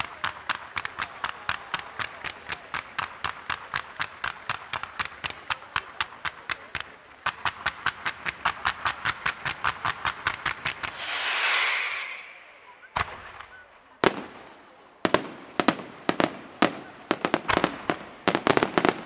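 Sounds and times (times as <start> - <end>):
fireworks battery firing shots: 0.2 - 19.0
loud hissing crackle: 10.5 - 14.6.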